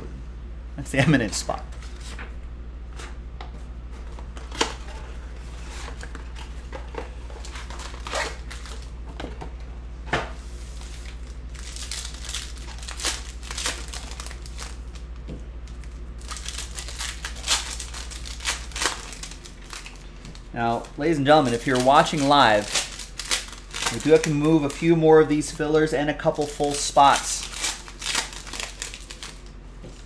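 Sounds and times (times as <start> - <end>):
steady low hum: 0.0 - 30.0
foil wrappers crinkling and tearing: 4.4 - 8.9, 10.7 - 29.5.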